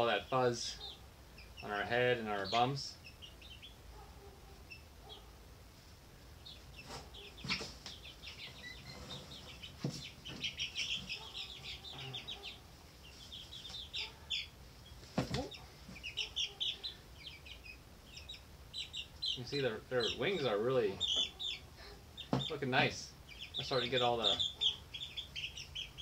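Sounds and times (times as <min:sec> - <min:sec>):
chicks peeping: 0:00.0 - 0:26.0.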